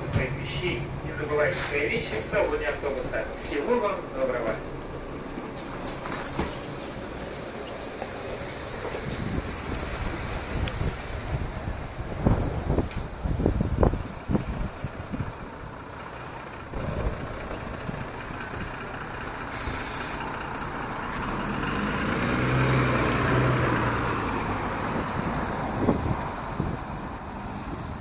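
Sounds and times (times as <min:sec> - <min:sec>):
bus engine running: 0:00.0 - 0:28.0
wind buffeting microphone: 0:08.5 - 0:15.8, 0:23.3 - 0:28.0
air brake hiss: 0:19.5 - 0:20.3.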